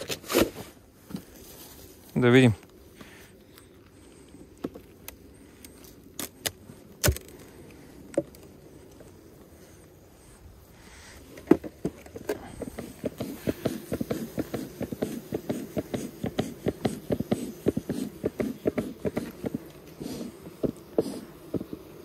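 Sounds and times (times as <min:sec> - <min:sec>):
hive tool knocking and scraping wood: 0:11.3 - 0:22.0.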